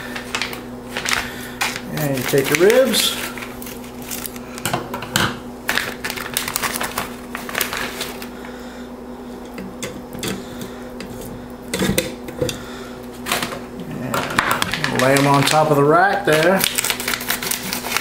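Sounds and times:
plastic bag crinkling: 0.0 - 4.6, 5.7 - 8.4, 13.2 - 18.0.

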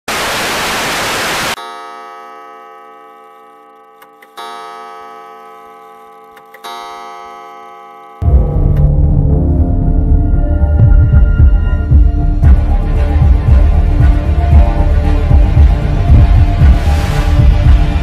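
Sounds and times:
static hiss: 0.1 - 1.6
loud scary music: 8.2 - 18.0.

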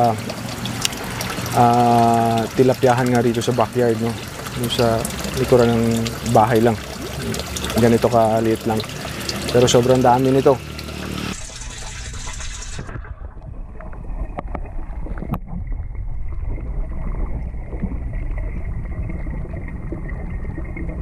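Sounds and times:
water pouring in heard underwater: 0.0 - 21.0
underwater rumble: 11.2 - 21.0.

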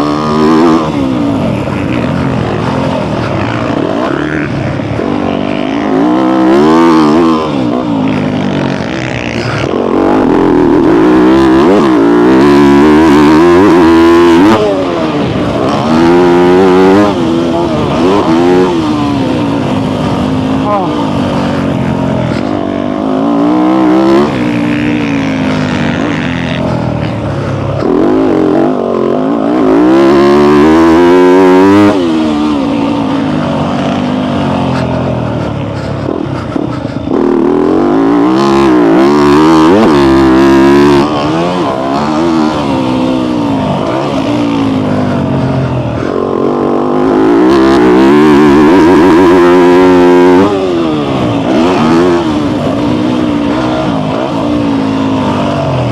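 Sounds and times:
dirt bike engine revving: 0.0 - 55.9.

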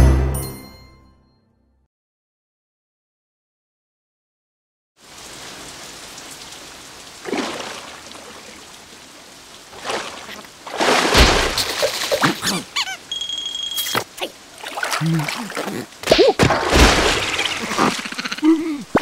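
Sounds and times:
hiss of falling rain: 5.0 - 19.0
splashing noise: 7.2 - 8.6, 9.7 - 13.0, 13.8 - 19.0.

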